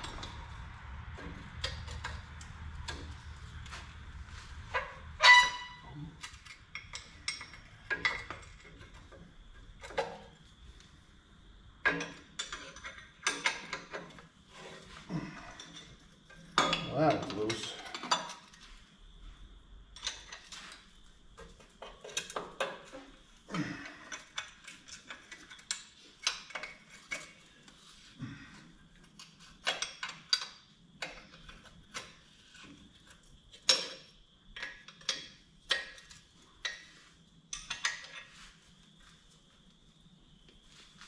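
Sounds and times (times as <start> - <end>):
metal tools clinking on bolts: 4.7 - 9.2, 11.8 - 14.2, 15.2 - 18.6, 37.5 - 38.4.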